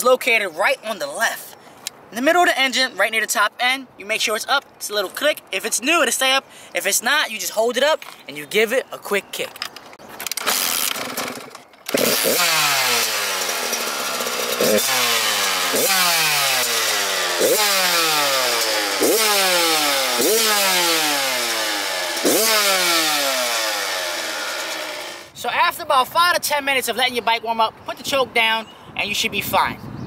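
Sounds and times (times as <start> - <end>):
dirt bike engine revving: 10.3 - 25.3.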